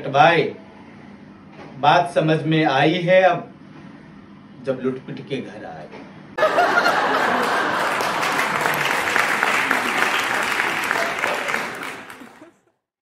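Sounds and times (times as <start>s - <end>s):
audience applause: 6.4s - 12.6s.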